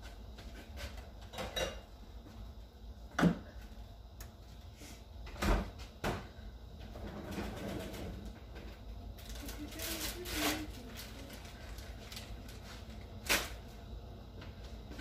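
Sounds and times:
kitchen things knocking and clunking: 0.6 - 1.9.

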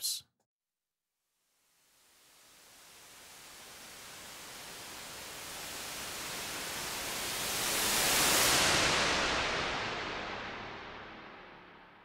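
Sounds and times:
white noise sweep with reverb: 2.1 - 11.4.

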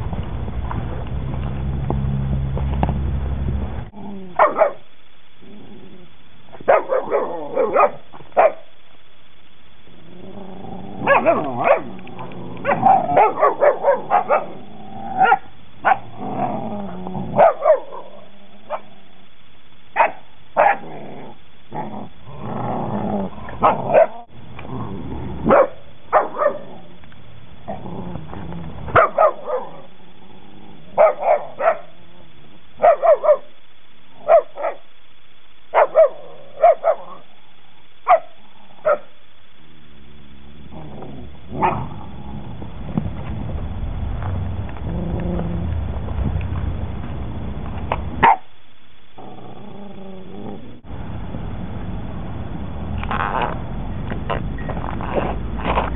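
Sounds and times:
puppies growling: 5.4 - 8.0, 9.9 - 18.9, 20.7 - 32.3, 40.6 - 43.6, 44.7 - 46.0, 49.1 - 50.9
puppies barking and yipping: 11.0 - 14.6.

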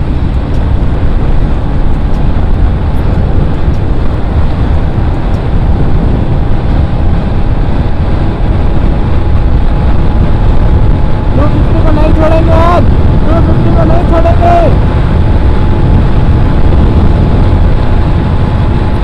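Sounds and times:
motorcycle engine running: 0.0 - 19.0
wind buffeting microphone: 0.0 - 19.0.

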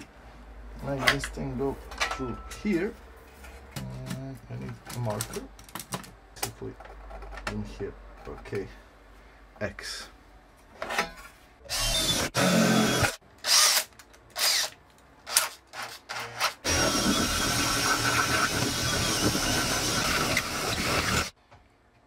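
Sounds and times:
cordless drill cutting aluminium: 11.7 - 14.7, 16.6 - 21.3.

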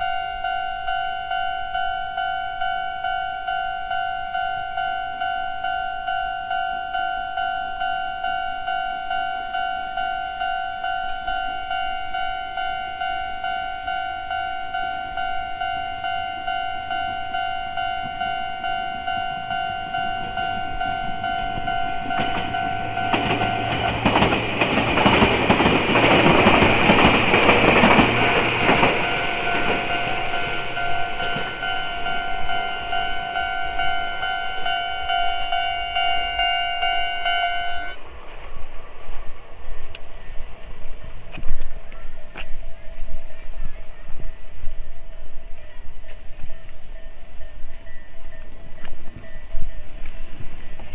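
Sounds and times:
level crossing bell dinging: 0.0 - 24.8, 26.2 - 38.0
train wheels running: 0.0 - 50.9.

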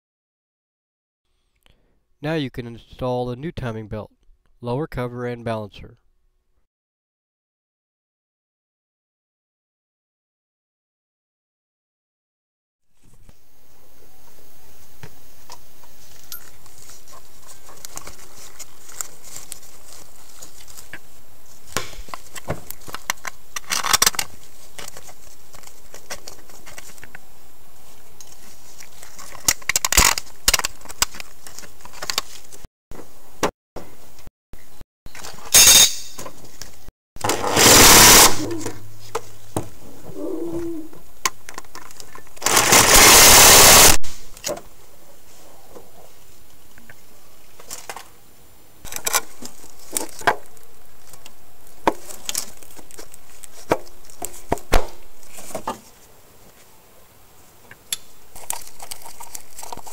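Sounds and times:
loud rattling bursts: 37.3 - 38.4, 42.4 - 44.0.

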